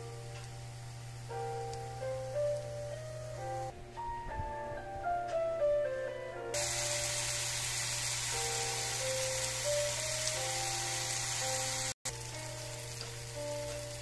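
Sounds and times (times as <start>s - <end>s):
food frying in oil: 6.6s - 14.0s.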